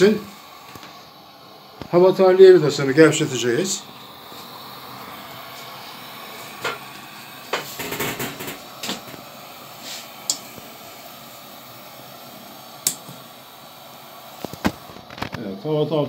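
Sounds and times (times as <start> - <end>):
pressure lantern hissing: 0.0 - 16.0
sharp clicks and knocks: 7.5 - 9.2.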